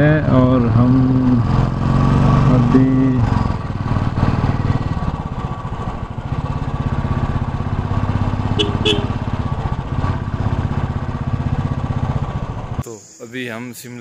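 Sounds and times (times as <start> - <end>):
motorcycle engine running: 0.0 - 12.8
short horn beeps: 8.5 - 9.2.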